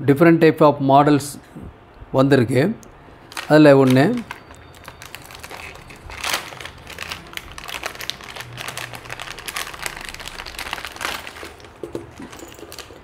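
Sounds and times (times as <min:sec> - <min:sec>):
plastic packaging crinkling: 0:03.2 - 0:13.0.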